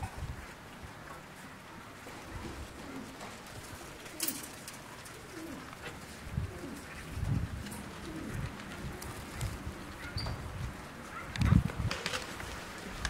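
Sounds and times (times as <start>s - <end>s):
pigeons cooing: 2.1s - 10.5s.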